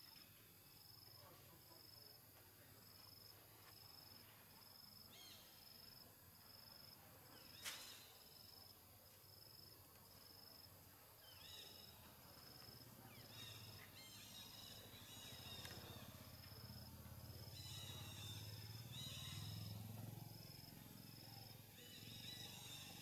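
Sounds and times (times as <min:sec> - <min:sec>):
insect chirping: 0:00.0 - 0:23.0
higher chirping calls: 0:17.4 - 0:19.8.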